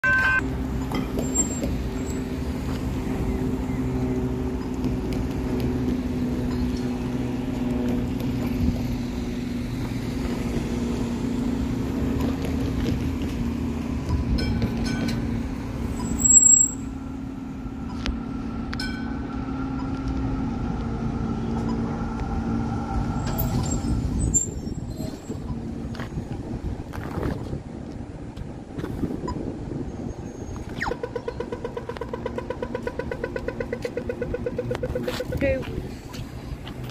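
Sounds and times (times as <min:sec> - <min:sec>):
high-pitched tram squeal: 0:00.0 - 0:02.4, 0:14.4 - 0:17.1, 0:21.2 - 0:26.0
road traffic hum: 0:00.0 - 0:36.9
tram passing on tracks: 0:00.0 - 0:36.9.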